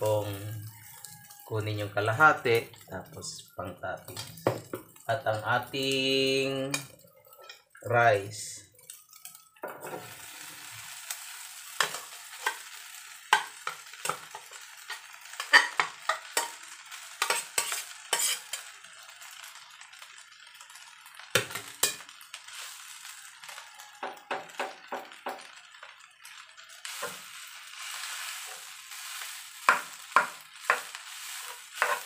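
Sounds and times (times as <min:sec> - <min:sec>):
rice sizzling in a pan: 0:00.0 - 0:32.0
spatula scraping pot and pan: 0:11.7 - 0:18.7, 0:26.8 - 0:32.0.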